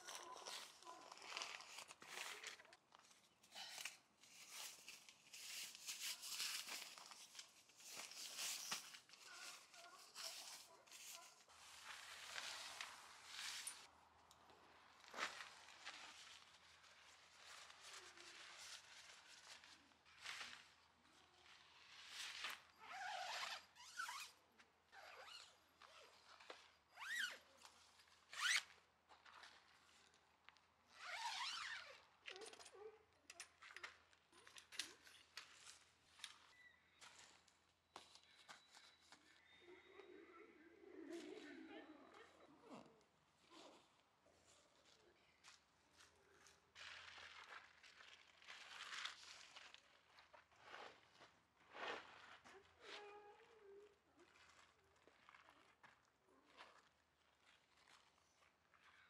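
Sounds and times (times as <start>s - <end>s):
tent zipper being pulled: 0.0s - 2.7s, 3.7s - 13.9s, 21.7s - 28.7s, 30.9s - 32.1s
fabric and bags rustling: 0.0s - 13.9s, 14.9s - 24.2s.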